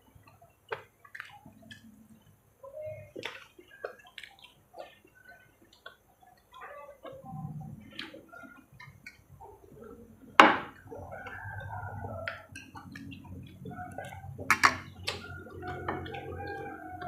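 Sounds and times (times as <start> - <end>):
chewing and wet mouth noises: 0.0 - 17.0.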